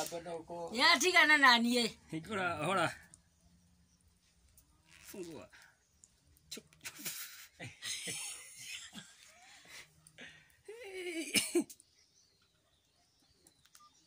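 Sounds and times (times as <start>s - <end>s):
people laughing: 6.8s - 11.8s.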